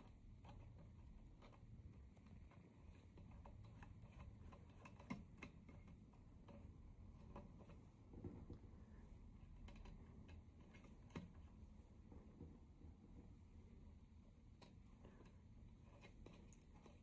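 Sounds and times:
small metal clicks and ticks: 0.0s - 7.8s, 9.4s - 11.5s.

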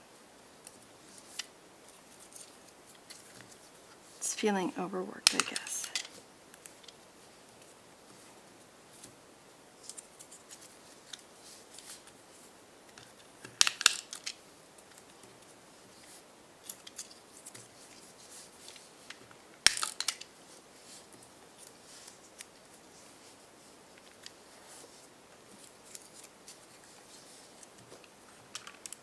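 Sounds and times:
paper rustling: 9.8s - 29.0s.

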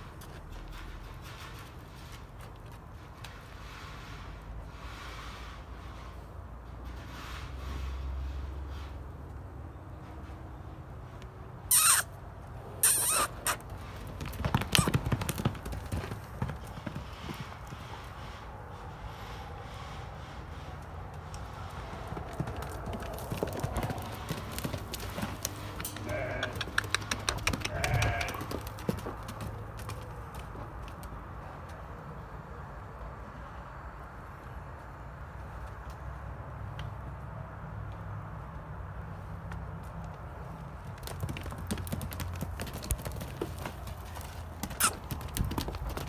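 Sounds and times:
horse hoofbeats on gravel: 13.4s - 18.3s, 21.4s - 31.2s, 39.8s - 46.0s.

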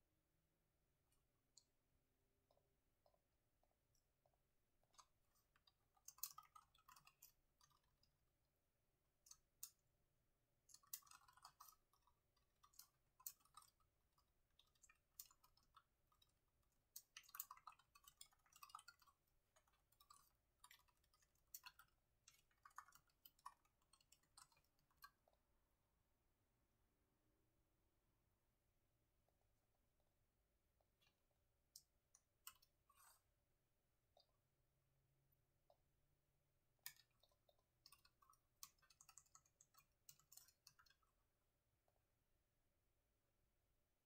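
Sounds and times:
typing on laptop keyboard: 4.9s - 8.2s, 10.6s - 25.3s, 36.9s - 41.2s.

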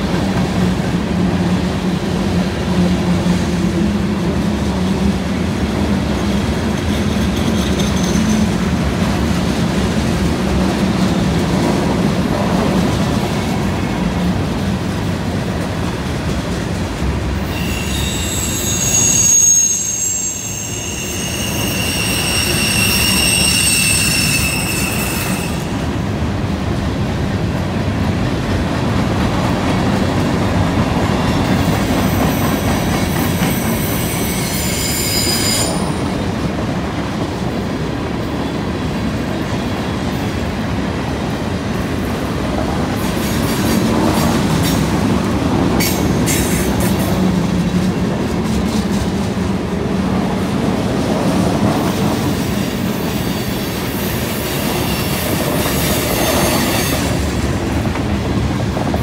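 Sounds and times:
train wheels rumbling on rail: 0.0s - 59.0s
wheel flange squeals: 17.4s - 25.7s, 32.3s - 36.0s.

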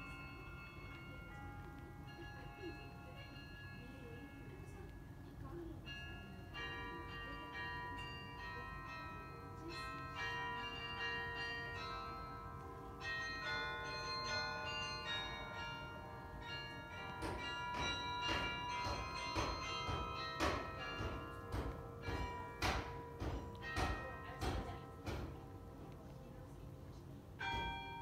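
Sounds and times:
carillon bells playing a tune: 0.0s - 28.0s.

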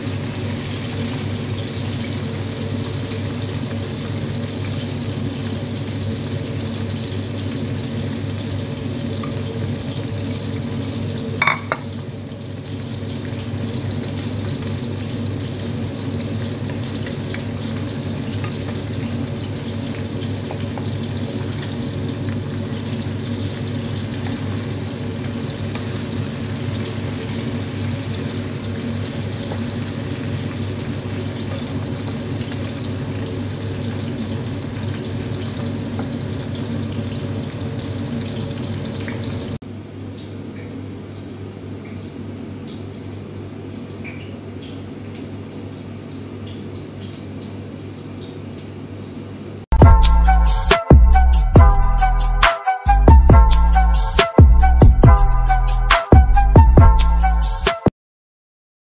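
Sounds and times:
vegetables sizzling in a pan: 0.0s - 39.6s.

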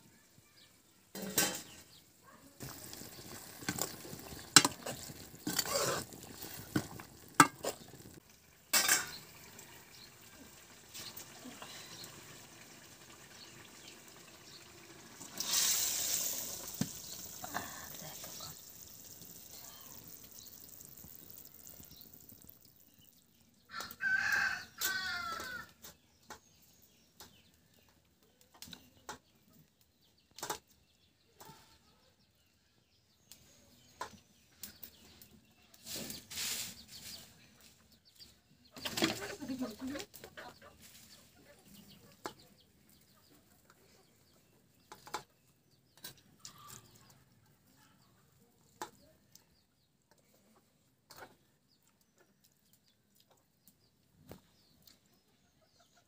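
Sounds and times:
faint sizzle from pan: 0.1s - 23.8s
chickens calling: 35.8s - 45.3s.

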